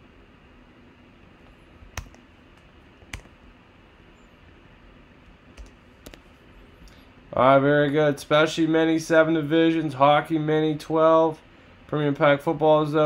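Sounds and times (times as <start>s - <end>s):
faint room hiss: 0.0s - 13.0s
keyboard and mouse clicks: 1.9s - 3.4s, 5.6s - 6.2s.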